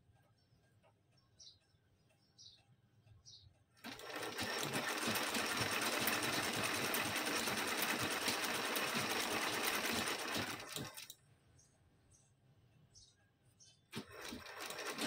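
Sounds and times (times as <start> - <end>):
faint bird chirps: 0.0 - 3.7, 11.5 - 13.9
sewing machine stitching: 3.8 - 11.2, 13.9 - 15.0.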